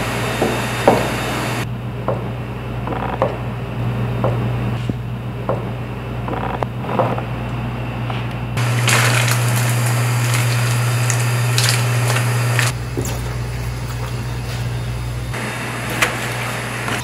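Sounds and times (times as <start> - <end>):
boiling soup rushing: 8.6 - 17.0.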